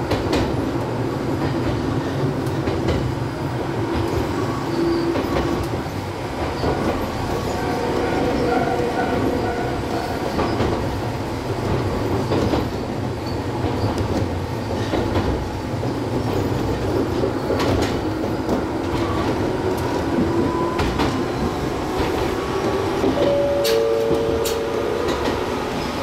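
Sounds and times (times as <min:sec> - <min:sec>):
electric train running rumble: 0:00.0 - 0:26.0.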